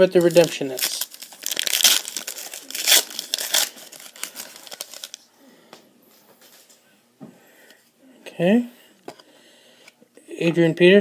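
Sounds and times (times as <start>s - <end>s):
wrapper tearing and crinkling: 0.1s - 5.3s.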